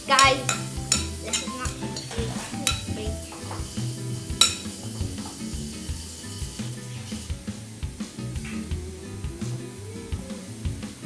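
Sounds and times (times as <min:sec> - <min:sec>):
background music with low notes: 0:00.0 - 0:11.0
spoon scraping a bowl: 0:04.4 - 0:07.3.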